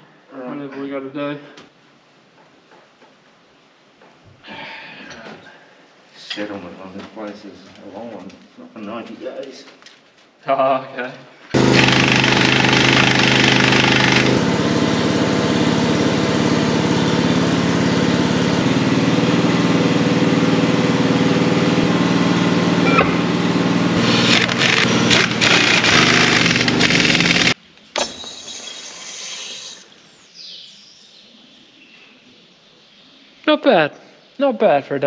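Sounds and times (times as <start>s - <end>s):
engine running steadily: 11.6s - 27.6s.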